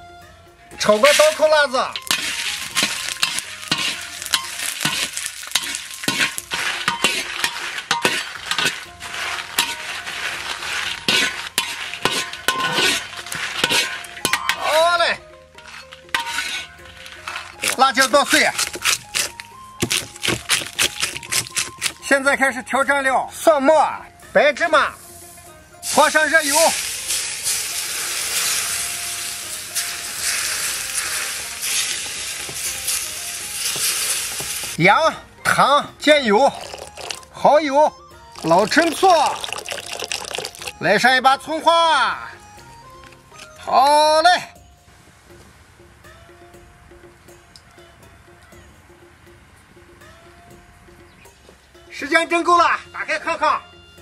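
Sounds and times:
chilies sizzling in oil: 0.7s - 14.8s, 15.5s - 22.6s, 24.9s - 34.8s, 36.0s - 37.4s, 38.2s - 41.0s
spatula scraping a wok: 0.8s - 14.6s, 15.5s - 22.0s, 26.8s - 34.8s.

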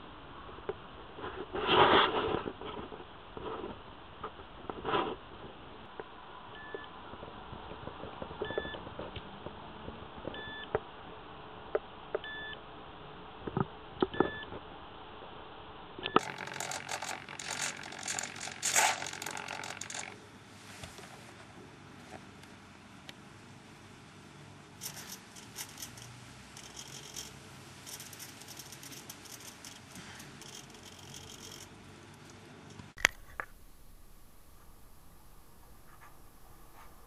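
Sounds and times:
two-tone electronic beep: 8.5s - 8.8s, 10.4s - 10.7s, 12.2s - 12.6s, 14.2s - 14.5s
irregular clicking and rustling: 16.1s - 21.2s, 24.8s - 33.6s.

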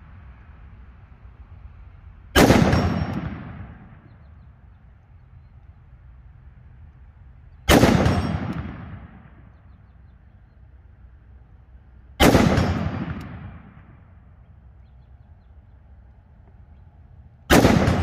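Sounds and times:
rifle shots with echo: 2.4s - 4.4s, 7.7s - 9.8s, 12.2s - 14.4s, 17.4s - 18.0s.

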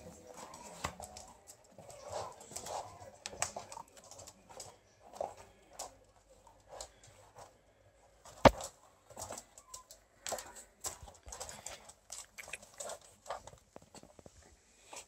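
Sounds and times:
puppy claws clicking on wood: 8.5s - 14.2s.

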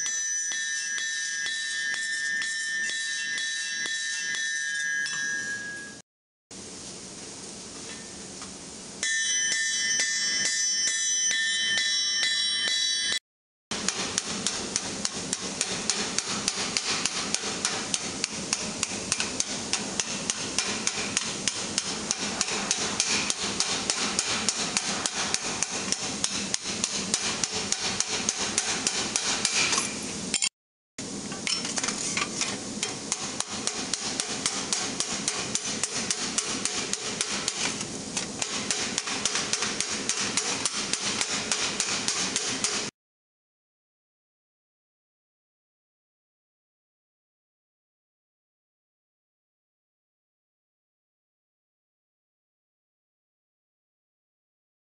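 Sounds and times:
hammer blows on hot sheet steel: 9.0s - 42.9s.

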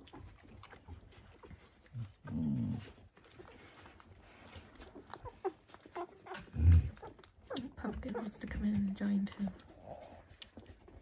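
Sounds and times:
puppies squeaking and whimpering: 0.0s - 8.7s
puppy grunting: 4.9s - 8.5s.

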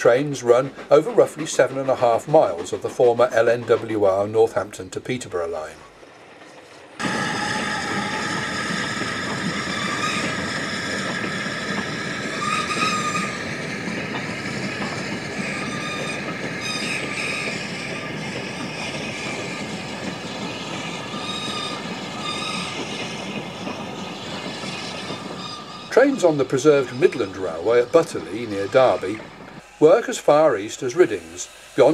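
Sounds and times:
train wheels and wagons rattling: 0.0s - 31.9s
thin metallic squeal: 20.8s - 23.2s, 24.2s - 29.0s.

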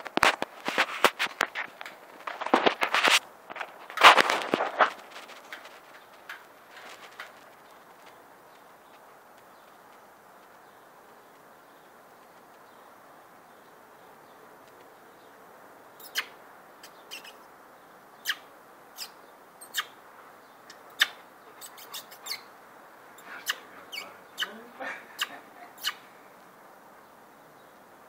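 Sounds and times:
nestlings peeping: 5.0s - 26.2s.

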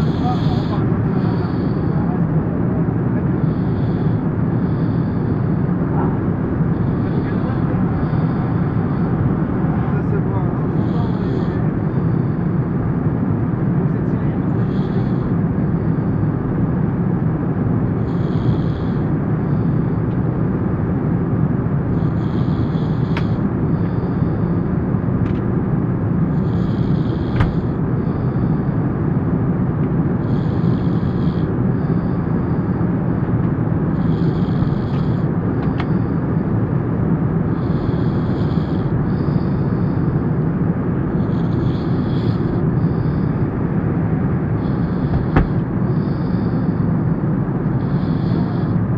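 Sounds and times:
person snoring: 0.0s - 2.1s, 3.3s - 5.6s, 6.7s - 9.2s, 10.6s - 12.2s, 14.5s - 15.4s, 18.0s - 19.1s, 21.9s - 23.4s, 26.3s - 27.7s, 30.2s - 32.6s, 33.9s - 36.1s, 37.5s - 40.2s, 41.1s - 43.4s, 44.6s - 46.9s, 47.8s - 48.8s
plane cabin drone: 0.0s - 48.9s.

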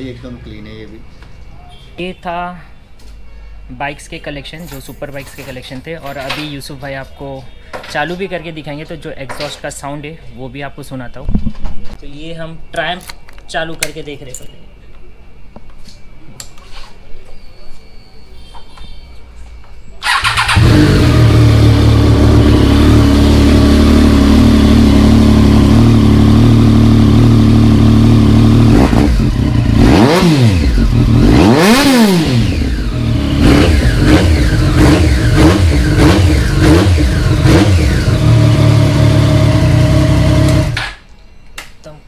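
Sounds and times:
motorcycle engine idling and revving: 20.0s - 41.0s.

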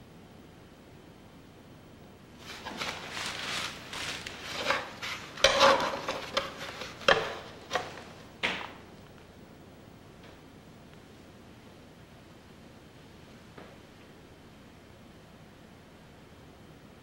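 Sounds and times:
paint rubbing and scraping: 2.4s - 8.2s.

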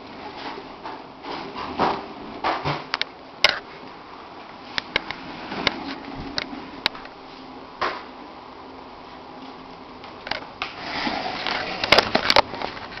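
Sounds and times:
scrape on tile floor: 10.8s - 12.0s.

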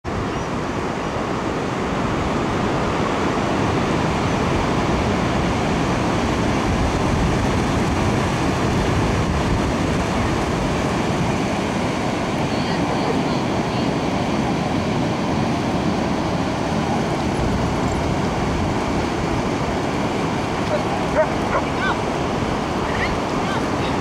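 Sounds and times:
ocean surf breaking: 0.1s - 24.0s
wind buffeting microphone: 0.1s - 24.0s.

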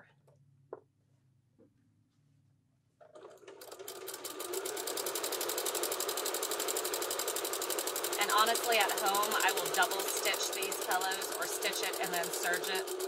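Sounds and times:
sewing machine stitching: 3.0s - 13.0s.

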